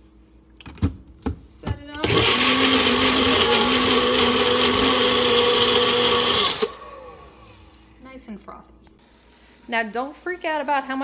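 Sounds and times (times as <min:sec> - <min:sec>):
blender running: 0:02.0 - 0:08.0.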